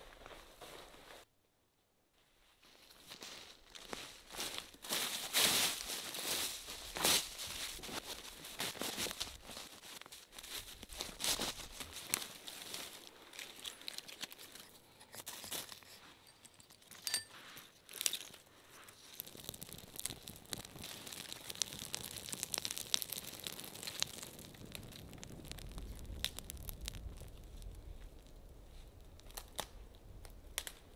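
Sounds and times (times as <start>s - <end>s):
pine needles scraped underfoot: 2.6s - 16.2s, 17.4s - 25.7s
twigs crinkling and snapping: 3.0s - 30.9s
flames crackling: 3.7s - 15.0s, 17.8s - 30.9s.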